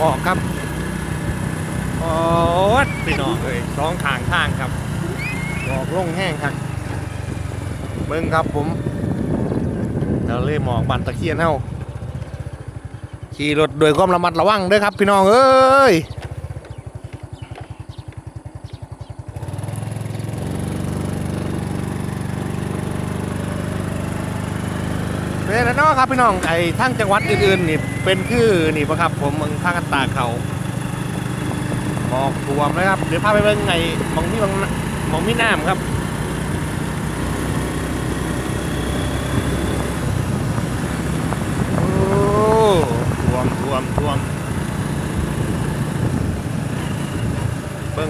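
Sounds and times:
small motorcycle engine puttering: 0:00.0 - 0:10.3, 0:11.6 - 0:14.2, 0:15.9 - 0:48.0
road noise: 0:00.0 - 0:48.0.

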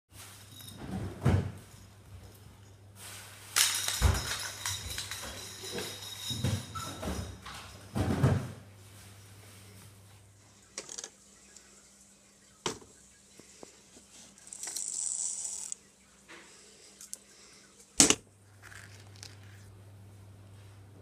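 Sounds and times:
rattling jingle: 0:00.2 - 0:08.3.

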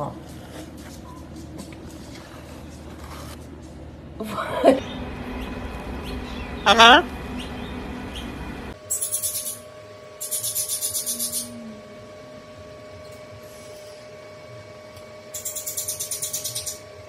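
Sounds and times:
parrot rapid rasping: 0:10.2 - 0:11.5.

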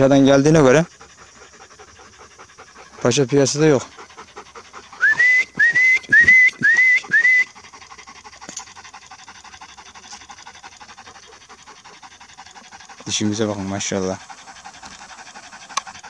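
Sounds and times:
dog panting: 0:00.0 - 0:16.0
person whistling rising notes: 0:05.0 - 0:07.5.

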